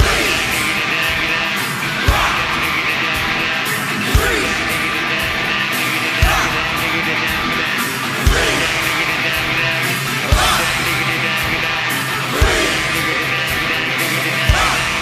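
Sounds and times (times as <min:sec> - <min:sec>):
electric guitar: 0:00.0 - 0:15.0
live rock band playing: 0:00.0 - 0:15.0.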